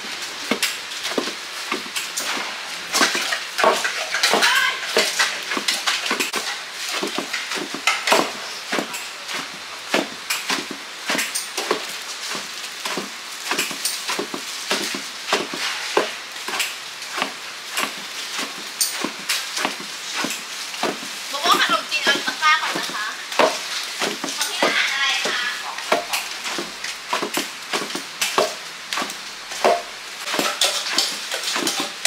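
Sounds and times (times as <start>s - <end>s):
sharp wooden knocks: 22.7s - 30.6s.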